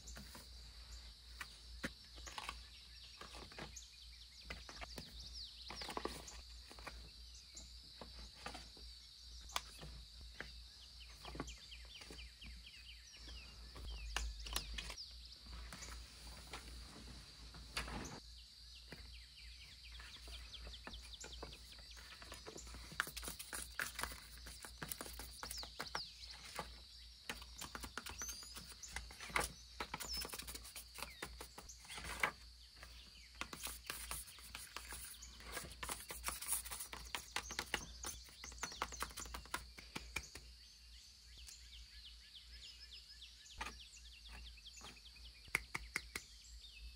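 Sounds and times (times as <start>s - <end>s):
paper pages turning and rustling: 1.4s - 3.7s, 5.7s - 7.0s, 20.2s - 39.7s.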